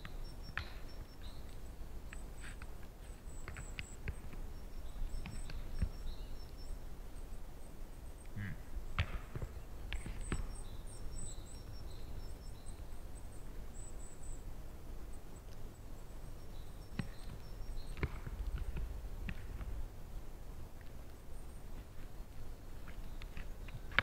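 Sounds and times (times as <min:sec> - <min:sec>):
faint high bird chirps: 0:00.0 - 0:08.6, 0:09.5 - 0:18.8.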